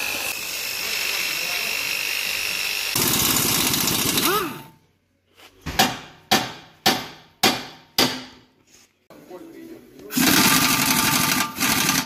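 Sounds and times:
power tool whirring: 0:00.0 - 0:04.6, 0:10.1 - 0:12.0
hammer striking metal: 0:05.7 - 0:08.4.

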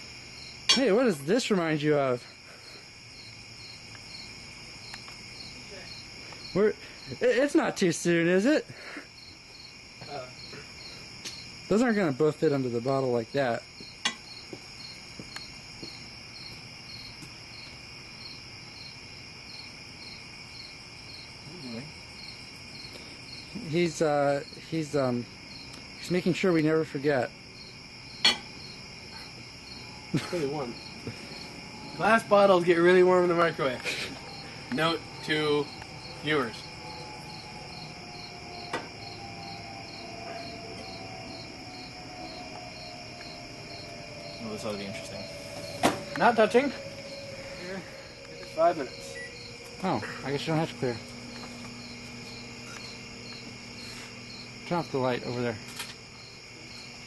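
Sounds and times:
crickets chirping: 0:00.0 - 0:57.0
high insect drone: 0:00.0 - 0:57.0
person speaking: 0:46.1 - 0:51.2.

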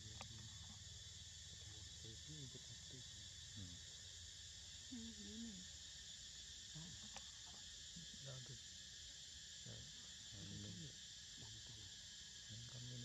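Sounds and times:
insect chorus: 0:00.0 - 0:13.0
faint low voices: 0:01.6 - 0:03.8, 0:08.0 - 0:08.6, 0:09.7 - 0:11.9, 0:12.5 - 0:13.0.

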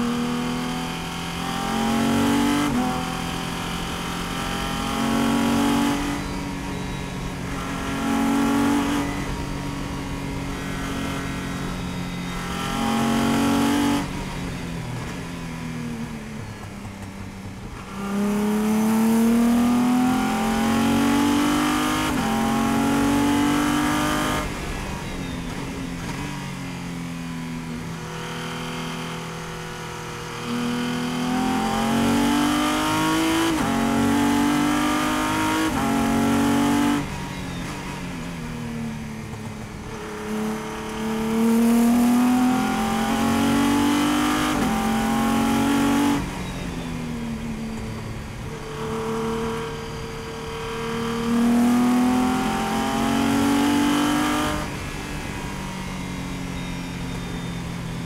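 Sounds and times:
race car engine accelerating: 0:00.0 - 0:15.3, 0:27.8 - 0:38.5, 0:39.4 - 0:58.0.

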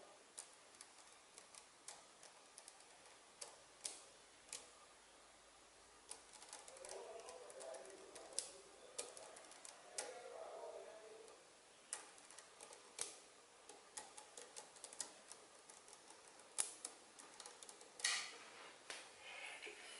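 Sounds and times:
magnetic metal balls clicking: 0:11.3 - 0:18.3.

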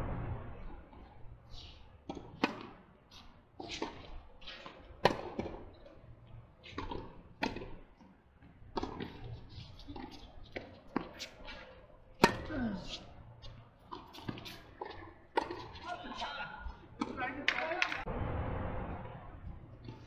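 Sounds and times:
rackets hitting tennis balls: 0:01.6 - 0:05.8, 0:08.7 - 0:13.0, 0:13.9 - 0:18.1
tennis balls bouncing on court: 0:02.0 - 0:02.8, 0:03.6 - 0:06.0, 0:06.6 - 0:18.1.

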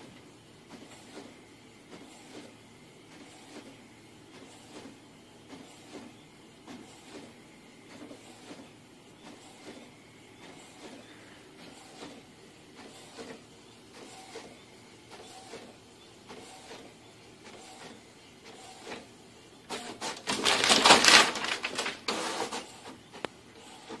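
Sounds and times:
printer head whirring: 0:00.0 - 0:24.0
printer clatter: 0:06.7 - 0:24.0
paper rustling: 0:19.8 - 0:22.7.

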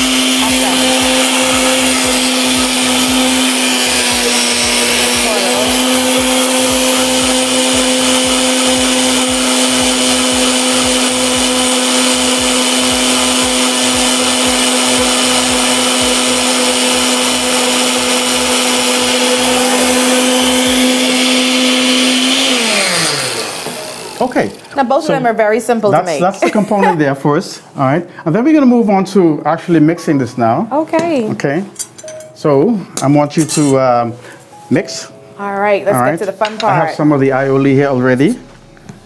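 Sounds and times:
blender motor running: 0:00.0 - 0:25.2.

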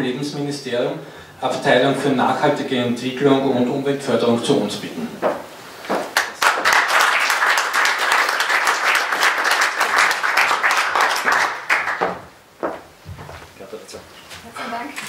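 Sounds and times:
audience applauding: 0:06.0 - 0:12.4.

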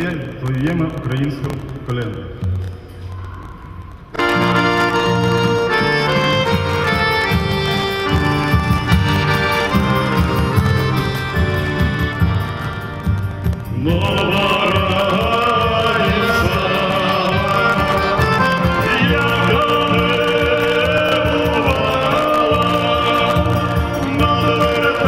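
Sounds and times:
acoustic guitar: 0:00.0 - 0:25.0
accordion: 0:04.1 - 0:25.0
steady drum beat: 0:04.3 - 0:25.0
man singing: 0:13.6 - 0:25.0.

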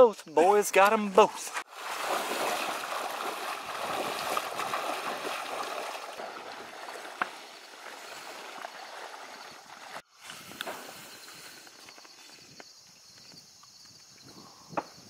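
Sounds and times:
wading steps sloshing in water: 0:01.6 - 0:10.0.

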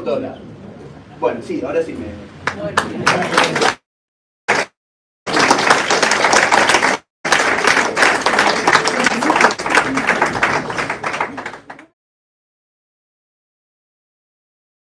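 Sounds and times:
audience applauding: 0:02.5 - 0:03.8, 0:04.5 - 0:04.7, 0:05.3 - 0:12.0.

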